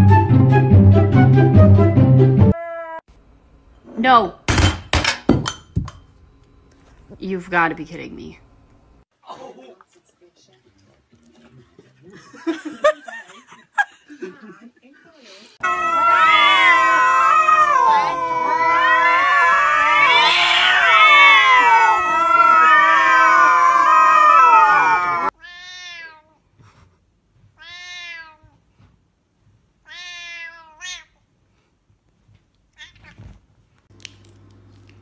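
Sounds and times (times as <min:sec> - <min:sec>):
cats yowling: 0:02.5 - 0:03.0, 0:15.6 - 0:26.3, 0:29.9 - 0:31.1
cat meowing: 0:15.6 - 0:24.5, 0:25.3 - 0:26.4, 0:27.6 - 0:28.6, 0:29.8 - 0:31.2, 0:32.8 - 0:33.4.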